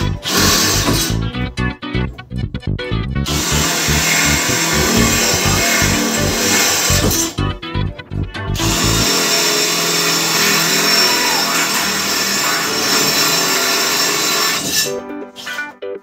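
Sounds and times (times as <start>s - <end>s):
background music with a beat: 0.0s - 9.4s
cordless drill boring through steel: 3.4s - 7.0s, 8.6s - 14.9s.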